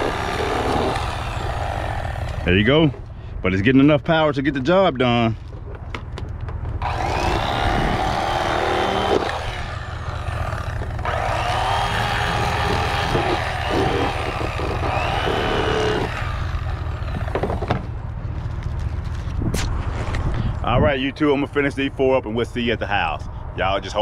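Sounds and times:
electric knife buzzing: 0:00.0 - 0:02.5, 0:06.8 - 0:17.7.

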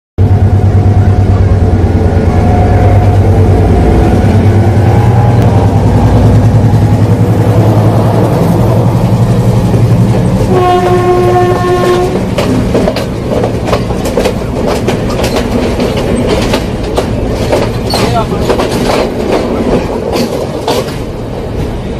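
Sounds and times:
diesel locomotive rumbling past: 0:00.2 - 0:21.9
passenger coaches passing: 0:00.2 - 0:21.9
train horn blast: 0:00.7 - 0:05.6, 0:10.4 - 0:12.4.

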